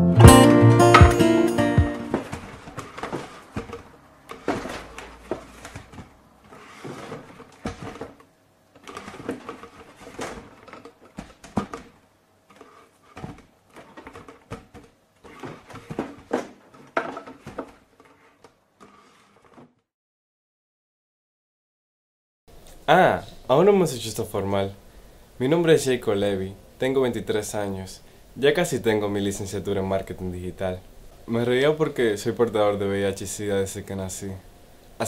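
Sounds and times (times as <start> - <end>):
chair creaking and knocking: 1.8 - 19.8
handling drinking cup: 2.1 - 19.8.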